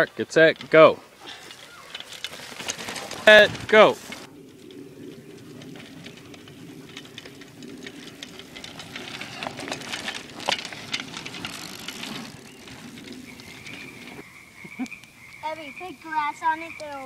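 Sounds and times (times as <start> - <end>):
bicycle tyres rumbling on dirt: 0.0 - 14.5
bicycle rattles and clicks: 0.0 - 17.0
loud bicycle clacks: 0.4 - 14.2.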